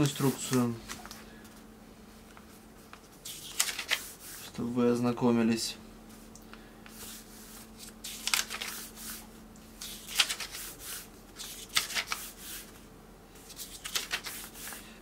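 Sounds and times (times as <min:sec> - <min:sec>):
paper pages flicking: 0:00.0 - 0:01.2, 0:02.9 - 0:04.2, 0:07.8 - 0:09.2, 0:09.8 - 0:10.8, 0:11.4 - 0:12.4, 0:13.4 - 0:14.8.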